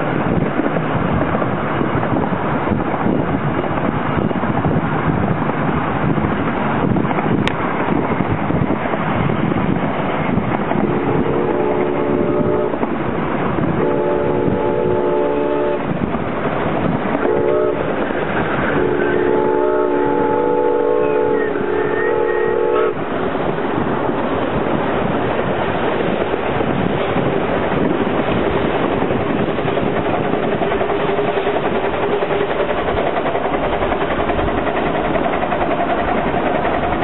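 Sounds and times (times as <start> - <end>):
train running noise: 0.0 - 37.0
locomotive chime whistle blasts: 17.2 - 17.8, 18.8 - 23.0.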